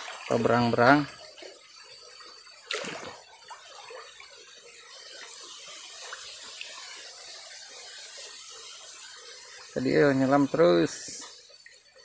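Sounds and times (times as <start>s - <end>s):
water splashing and trickling: 0.0s - 12.0s
loud splash: 2.7s - 3.2s.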